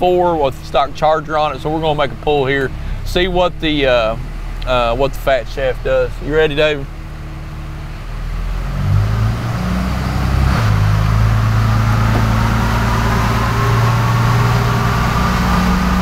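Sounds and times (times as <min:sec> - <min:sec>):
diesel engine running: 0:00.0 - 0:16.0
turbo whine rising in pitch: 0:08.1 - 0:16.0.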